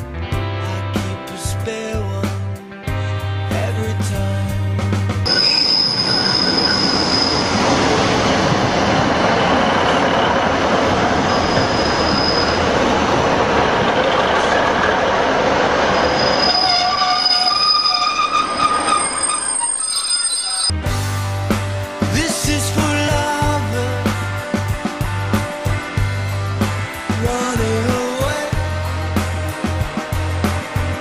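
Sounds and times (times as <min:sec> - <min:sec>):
train rushing on rails: 0:05.2 - 0:20.7, 0:23.2 - 0:31.0
wheels squealing: 0:05.3 - 0:20.8.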